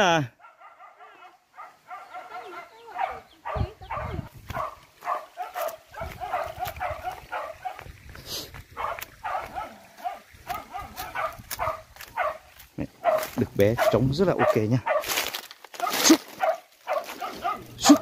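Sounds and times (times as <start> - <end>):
dogs barking and yelping: 0.3 - 18.0.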